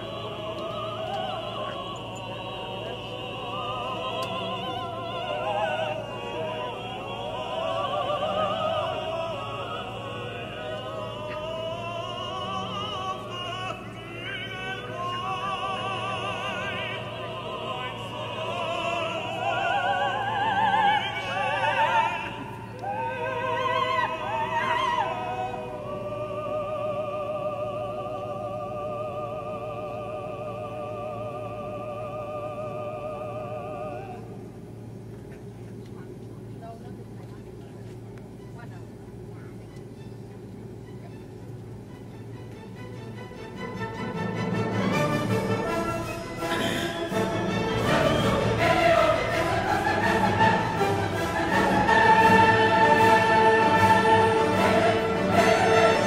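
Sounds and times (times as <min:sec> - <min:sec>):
operatic singing: 0:00.0 - 0:34.6, 0:42.8 - 0:56.0
low steady hum: 0:00.0 - 0:56.0
classical accompaniment: 0:39.6 - 0:56.0.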